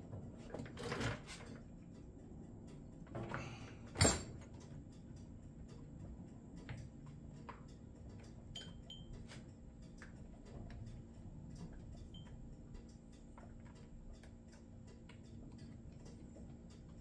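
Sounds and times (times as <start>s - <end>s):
metal tools clicking and clinking: 3.4s - 4.5s.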